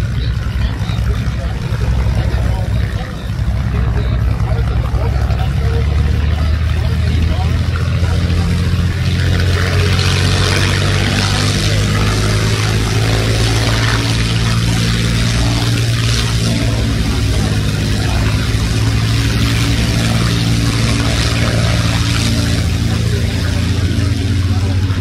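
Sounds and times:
propeller plane engine running: 0.0s - 25.0s.

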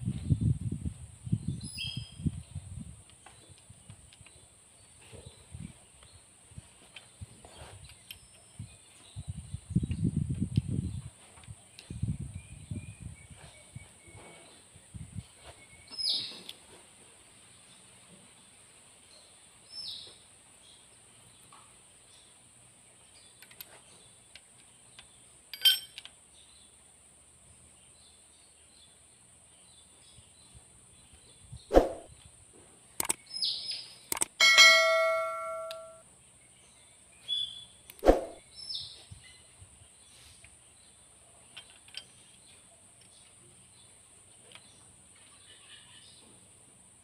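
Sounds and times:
steel tools clinking on metal: 25.5s - 26.1s, 34.4s - 36.0s
ringing metal clang: 25.6s - 26.0s, 34.4s - 36.0s.

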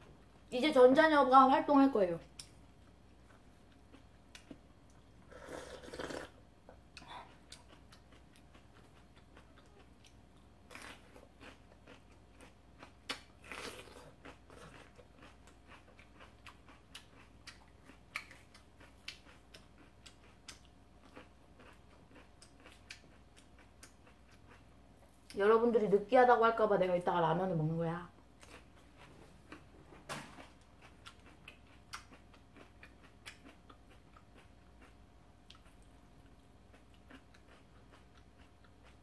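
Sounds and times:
person chewing food: 2.4s - 25.4s, 28.4s - 29.8s, 30.4s - 39.0s.

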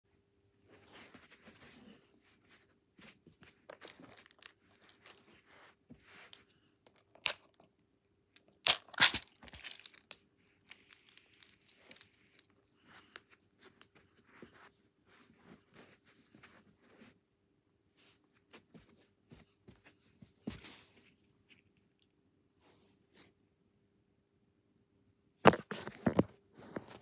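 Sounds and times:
plastic box rattling: 8.7s - 10.1s.

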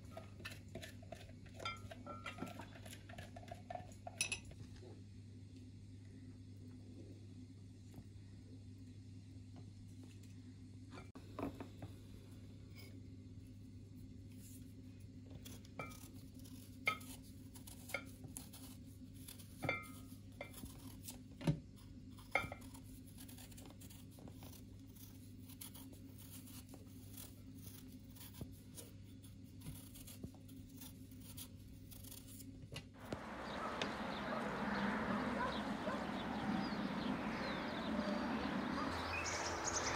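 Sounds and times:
knife scraping potato skin: 0.0s - 3.5s, 15.3s - 32.6s
low steady hum: 0.0s - 28.2s, 32.6s - 39.9s.

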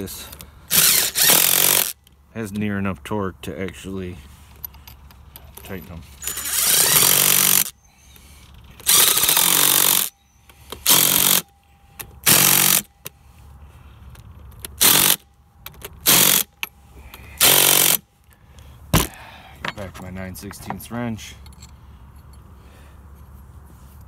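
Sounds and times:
impact driver bursts: 0.7s - 2.0s, 6.2s - 7.8s, 8.8s - 10.1s, 10.8s - 11.5s, 12.2s - 12.9s, 14.8s - 15.2s, 16.0s - 16.5s, 17.4s - 18.0s.

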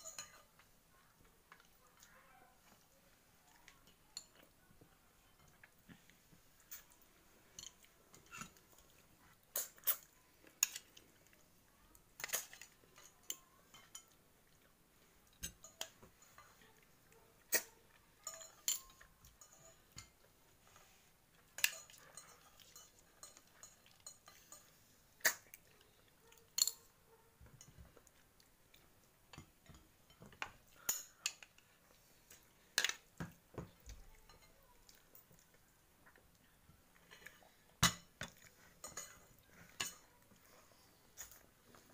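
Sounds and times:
cutlery clinking on ceramic plate: 0.0s - 0.6s, 17.5s - 20.2s, 21.6s - 25.4s, 37.8s - 40.2s.

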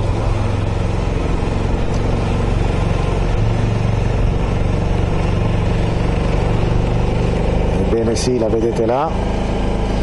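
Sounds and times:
motorcycle engine running: 0.0s - 10.0s
wind and road noise: 0.0s - 10.0s.

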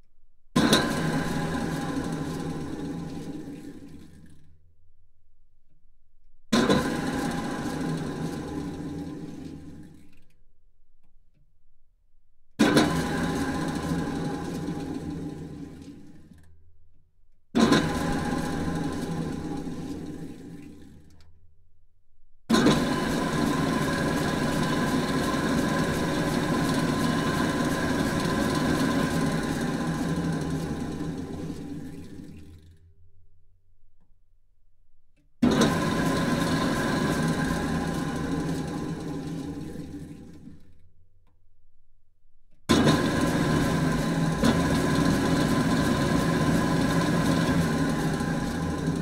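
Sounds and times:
drill press motor hum: 0.6s - 4.6s, 6.5s - 10.4s, 12.6s - 16.7s, 17.6s - 21.4s, 22.5s - 33.0s, 35.2s - 41.4s, 42.6s - 49.0s.

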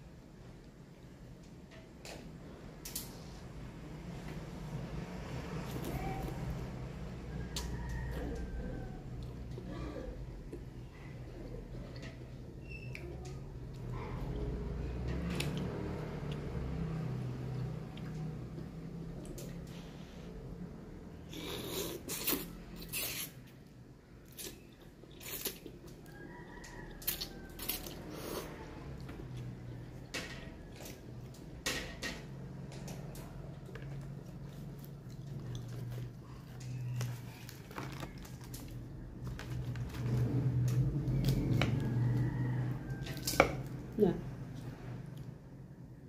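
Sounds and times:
person slurping noodles: 21.3s - 23.4s.

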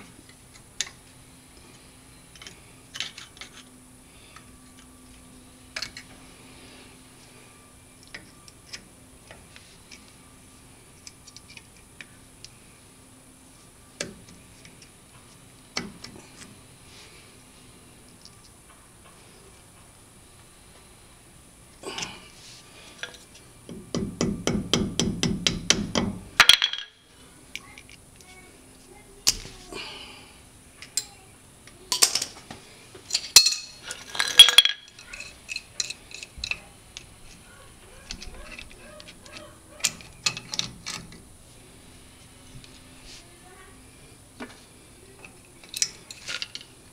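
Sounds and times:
wrench clinking against metal: 33.1s - 36.7s.

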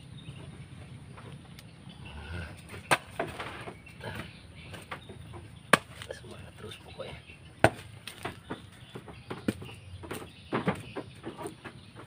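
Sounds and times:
hoe chopping into soil: 2.7s - 3.8s, 5.7s - 6.1s, 7.6s - 8.5s.

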